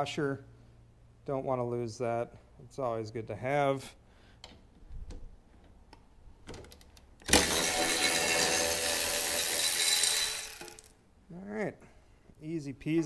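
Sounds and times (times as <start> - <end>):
electric ratchet whirring: 7.2 - 11.0.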